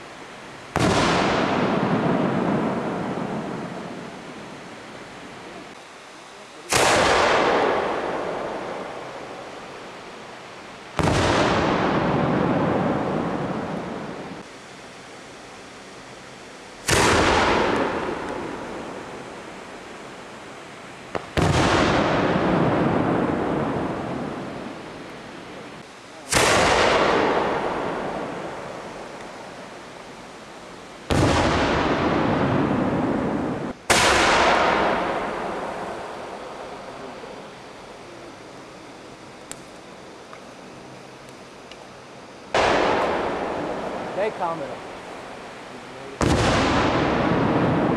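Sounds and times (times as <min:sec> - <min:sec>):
firework bangs with echo: 0:00.7 - 0:04.4, 0:06.6 - 0:09.7, 0:10.9 - 0:14.4, 0:16.8 - 0:19.5, 0:21.1 - 0:24.7, 0:26.2 - 0:29.4, 0:31.0 - 0:36.9, 0:42.5 - 0:45.3, 0:46.1 - 0:47.9.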